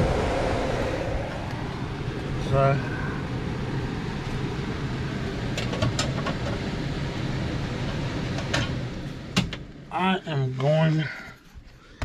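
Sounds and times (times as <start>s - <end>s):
air handler blower rushing: 0.0s - 9.4s.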